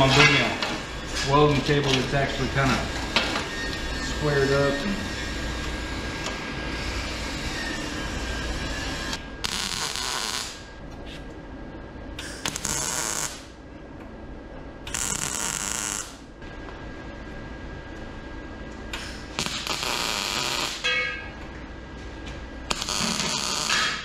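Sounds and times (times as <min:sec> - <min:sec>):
welder arcing on steel: 0:05.3 - 0:10.8, 0:12.2 - 0:13.6, 0:14.8 - 0:16.2, 0:18.9 - 0:20.9, 0:22.7 - 0:24.0.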